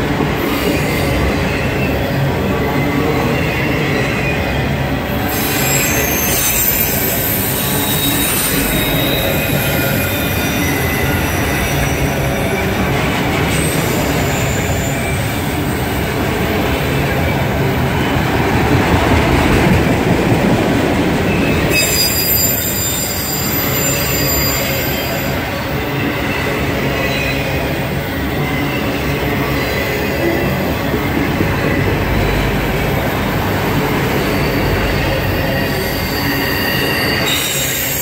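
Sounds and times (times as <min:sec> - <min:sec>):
train wheels rumbling on rail: 0:00.0 - 0:38.0
high wheel squeal: 0:00.4 - 0:16.1, 0:21.3 - 0:38.0.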